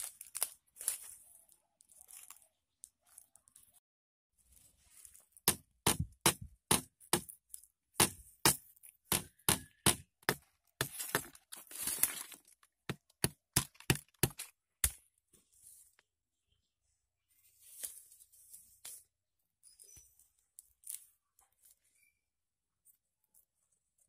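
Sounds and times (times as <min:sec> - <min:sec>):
crackling rustle: 0:00.0 - 0:03.8, 0:04.4 - 0:05.4
stone axe chopping bamboo: 0:05.4 - 0:07.3, 0:08.0 - 0:11.4, 0:12.9 - 0:15.0.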